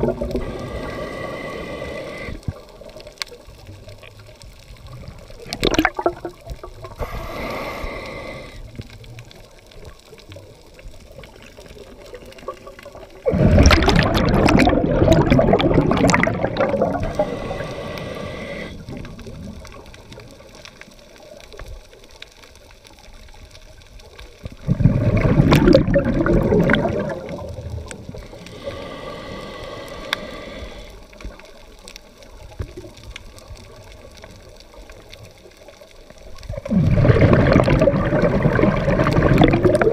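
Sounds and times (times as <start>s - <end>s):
underwater exhaled bubbles rushing: 0.0s - 21.8s, 24.0s - 39.9s
regulator inhalation hiss: 0.3s - 2.6s, 6.9s - 8.8s, 16.9s - 19.0s, 28.2s - 31.3s.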